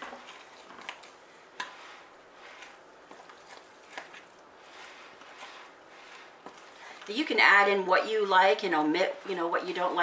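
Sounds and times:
fork stirring thick batter: 0:00.0 - 0:07.9.

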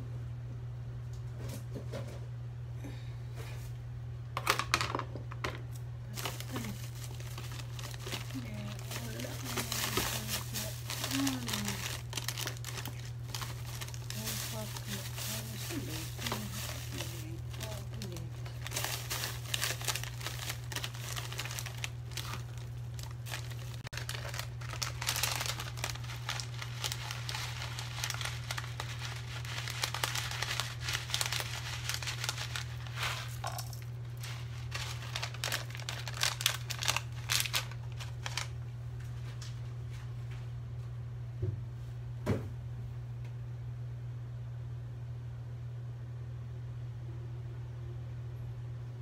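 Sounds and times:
plastic sachets crinkling: 0:06.1 - 0:38.6.

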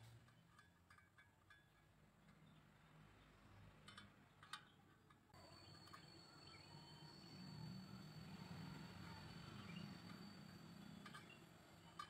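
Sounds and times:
faint steady high tone: 0:05.4 - 0:12.0.

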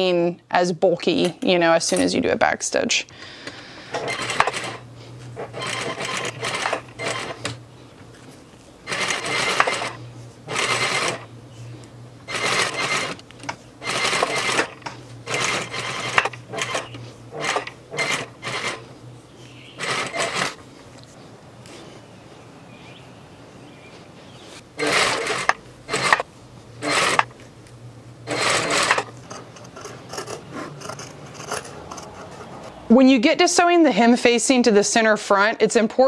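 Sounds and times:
low motor hum: 0:03.8 - 0:32.9
sewing machine stitching: 0:03.9 - 0:04.8, 0:05.4 - 0:07.6, 0:08.8 - 0:11.3, 0:12.3 - 0:18.8, 0:19.8 - 0:20.6, 0:24.8 - 0:26.2, 0:26.8 - 0:27.3, 0:28.2 - 0:32.3.

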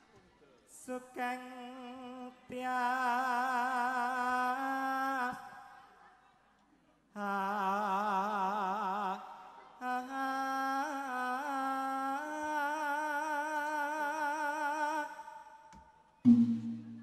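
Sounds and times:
solo voice singing: 0:07.2 - 0:15.7.

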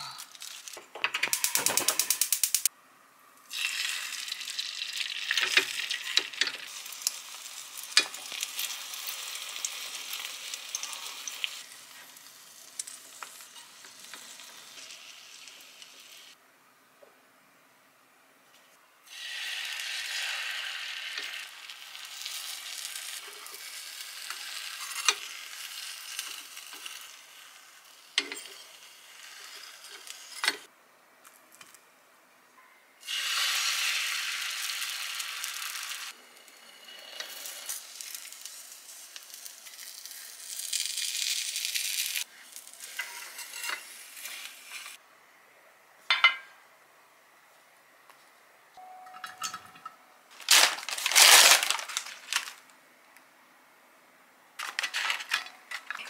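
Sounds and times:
egg sizzling in a pan: 0:03.5 - 0:16.4, 0:19.0 - 0:30.7, 0:33.0 - 0:45.0.

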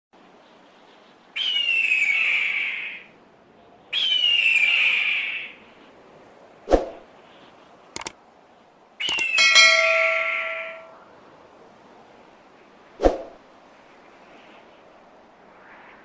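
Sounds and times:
quick click: 0:08.0 - 0:08.2, 0:09.0 - 0:09.4.

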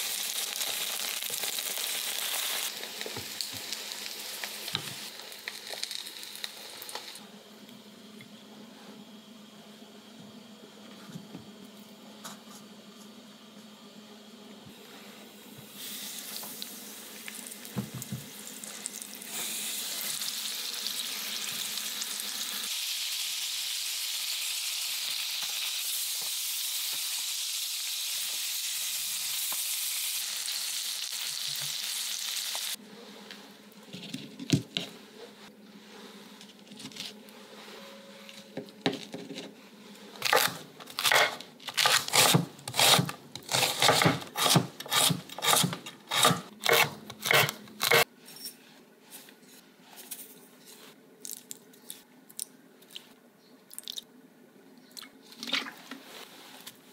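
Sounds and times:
fish sizzling in oil: 0:00.0 - 0:07.2, 0:15.7 - 0:32.8
knife chopping on cutting board: 0:40.3 - 0:48.0.

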